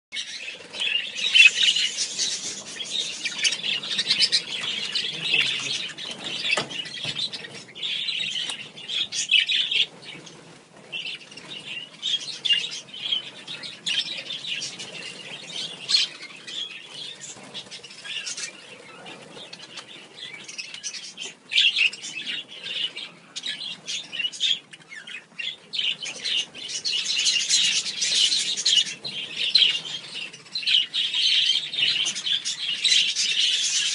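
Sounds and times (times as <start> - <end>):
wings fluttering: 0.2 - 22.1
budgerigars chattering and chirping: 0.2 - 33.9.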